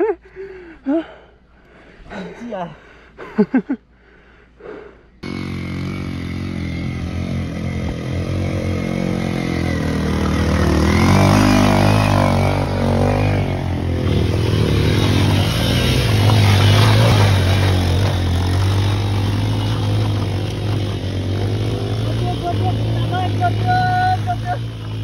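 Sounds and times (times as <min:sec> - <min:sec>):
motorcycle engine running: 0:05.2 - 0:25.0.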